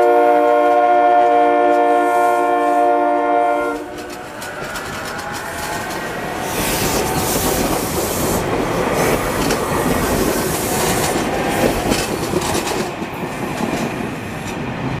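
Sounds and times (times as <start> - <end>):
train wheels rumbling and clicking: 3.4 - 15.0.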